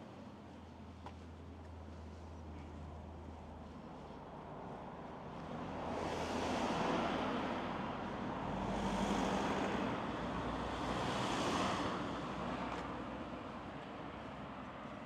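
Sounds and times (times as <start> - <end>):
cars passing: 4.0 - 15.0.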